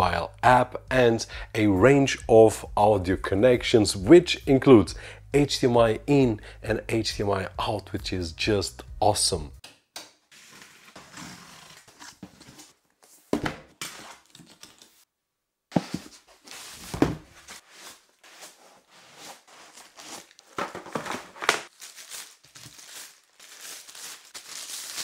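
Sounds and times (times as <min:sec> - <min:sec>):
packaging wrap crinkling: 0:19.5 - 0:25.0.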